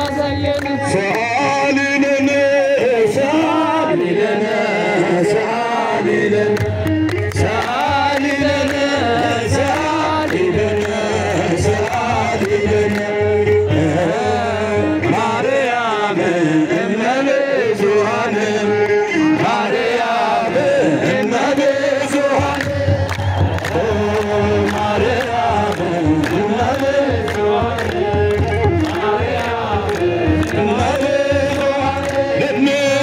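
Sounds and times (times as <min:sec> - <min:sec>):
men chanting a hymn: 0:00.0 - 0:33.0
drum beats: 0:06.6 - 0:13.1, 0:21.1 - 0:33.0.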